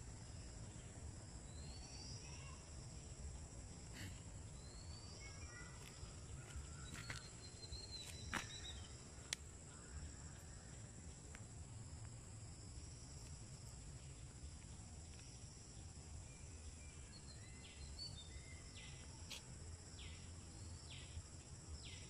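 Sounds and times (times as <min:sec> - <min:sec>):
high insect trill: 0:00.0 - 0:22.0
bird chirps: 0:03.9 - 0:09.0, 0:16.4 - 0:19.4.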